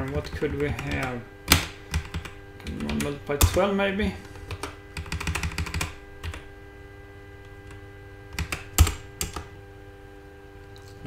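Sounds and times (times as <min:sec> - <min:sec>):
computer keyboard keystrokes: 0:00.0 - 0:03.6, 0:04.3 - 0:06.4, 0:07.6 - 0:09.5
faint electrical hum: 0:00.0 - 0:11.0.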